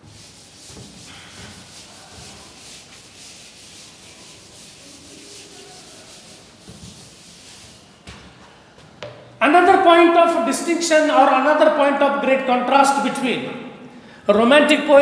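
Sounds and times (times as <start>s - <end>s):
duster rubbing on a chalkboard: 0.0s - 8.0s.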